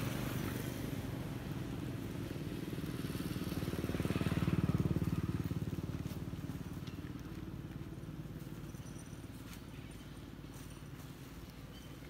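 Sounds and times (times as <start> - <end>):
small engine running: 3.0 - 9.6.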